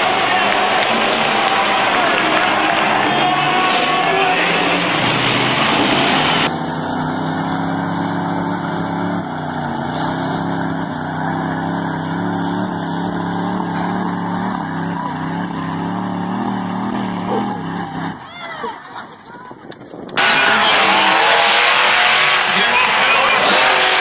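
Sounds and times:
truck engines running under load: 0:04.7 - 0:24.0
loud music: 0:05.0 - 0:06.6, 0:20.2 - 0:24.0.

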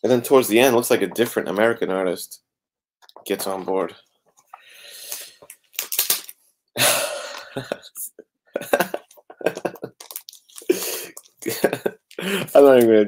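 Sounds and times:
man laughing breathily: 0:06.8 - 0:09.9, 0:10.6 - 0:12.6
plastic sleeves rustling and crinkling: 0:09.0 - 0:11.9.

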